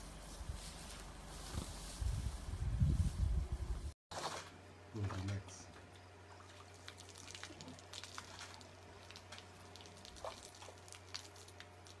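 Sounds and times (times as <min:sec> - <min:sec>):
steady low hum: 0:00.0 - 0:12.0
water drips and splashes: 0:06.4 - 0:12.0.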